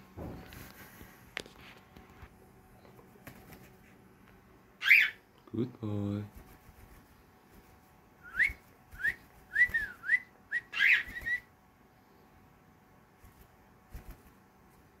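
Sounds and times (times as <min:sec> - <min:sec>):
cockatiel whistled chirps: 0:08.2 - 0:11.5.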